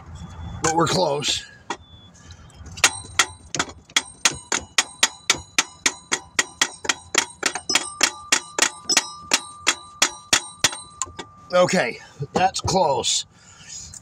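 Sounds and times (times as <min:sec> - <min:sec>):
hammer tapping on metal: 0:02.8 - 0:11.4.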